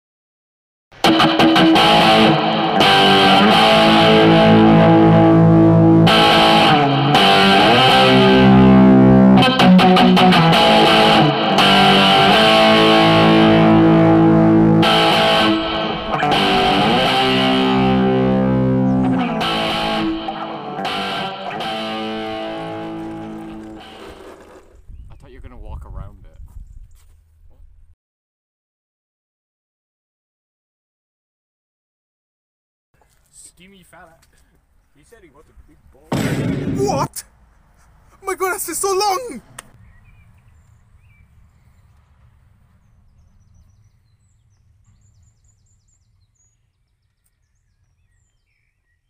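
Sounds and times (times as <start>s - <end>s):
distorted electric guitar chords: 1.0s - 24.1s, 36.2s - 37.0s.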